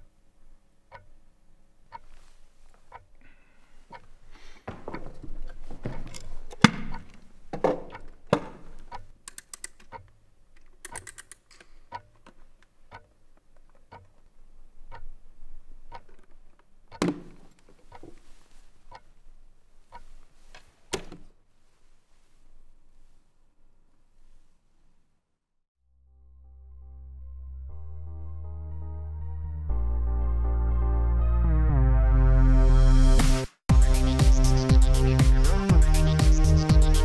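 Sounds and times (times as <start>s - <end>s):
chess clock ticking: 0.9s - 1.1s, 1.9s - 2.2s, 2.9s - 3.1s, 3.9s - 4.1s, 4.7s - 10.1s, 10.8s - 12.2s, 12.9s - 13.1s, 13.8s - 14.2s, 14.9s - 15.2s, 15.9s - 16.2s, 19.8s - 20.1s
sharp clicks: 8.9s - 12.1s.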